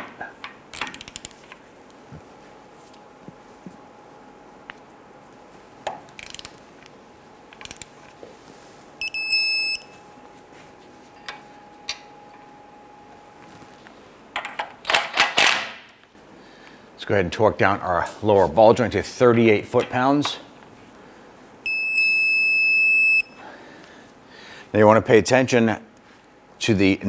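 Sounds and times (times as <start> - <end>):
faint steady hum: 0.0 - 15.1, 15.8 - 27.0
high-pitched electronic beep: 9.0 - 9.9.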